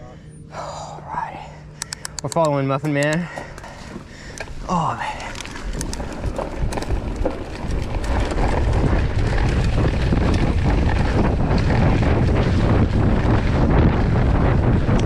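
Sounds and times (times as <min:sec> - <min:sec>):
faint bike ticks and rattles: 0:00.0 - 0:15.0
wind buffeting microphone: 0:03.1 - 0:15.0.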